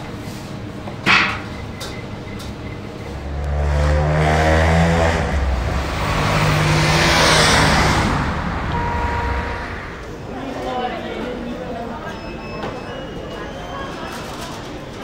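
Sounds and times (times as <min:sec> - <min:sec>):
vehicle engine passing: 0:03.1 - 0:10.3.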